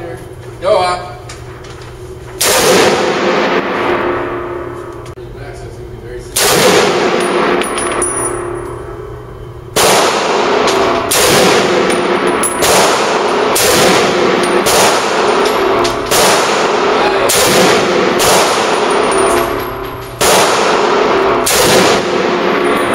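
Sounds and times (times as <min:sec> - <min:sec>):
rifle shots ringing: 0:02.4 - 0:04.6, 0:06.4 - 0:08.7, 0:09.7 - 0:22.9.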